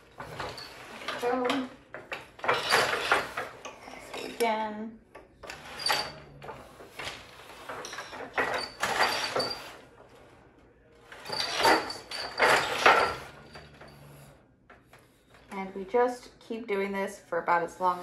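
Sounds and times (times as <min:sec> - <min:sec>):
loom shuttle sliding: 0:00.0 - 0:04.2, 0:05.4 - 0:10.4, 0:11.0 - 0:14.0.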